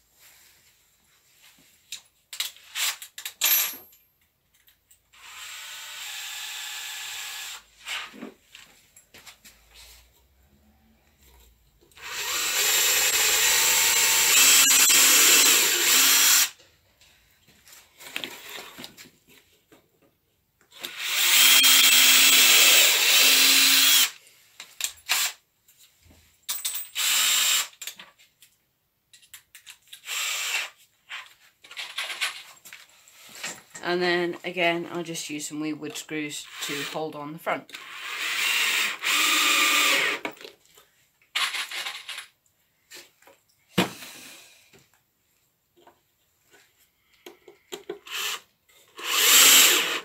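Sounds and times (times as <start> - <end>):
cordless drill driving screws: 5.1 - 8.1, 12.0 - 16.6, 20.7 - 24.2, 27.0 - 27.9, 30.0 - 30.8, 36.4 - 37.1, 37.7 - 40.4, 48.0 - 50.0.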